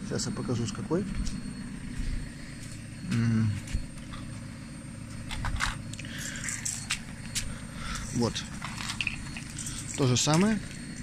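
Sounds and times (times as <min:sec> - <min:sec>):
low background hum: 0:00.0 - 0:11.0
person humming: 0:03.1 - 0:03.7.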